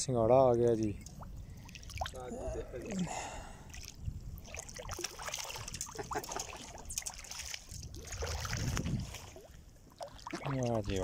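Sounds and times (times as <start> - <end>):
water splashing and sloshing: 0.0 - 11.0
fish thrashing in water: 3.7 - 10.7.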